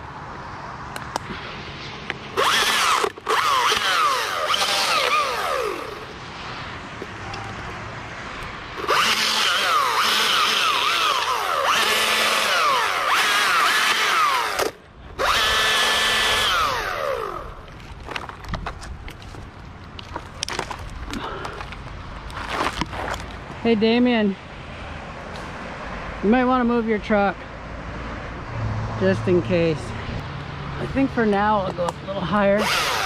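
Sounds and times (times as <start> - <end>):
chainsaw cutting wood: 2.4 - 6.1, 8.8 - 17.6, 32.6 - 33.0.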